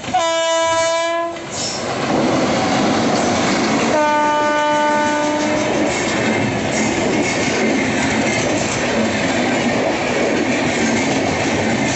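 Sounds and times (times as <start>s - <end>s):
train rushing past: 0.0s - 11.9s
locomotive horn blasts: 0.1s - 1.5s, 3.9s - 5.7s.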